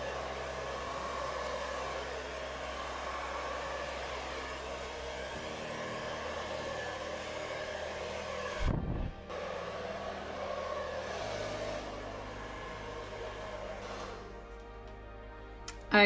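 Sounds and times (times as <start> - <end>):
hair dryer blowing air: 0.0 - 15.0.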